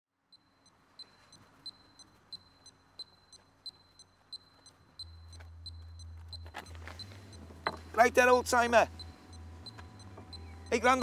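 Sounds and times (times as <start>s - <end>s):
clock ticking: 0.2s - 11.0s
low steady rumble: 5.0s - 11.0s.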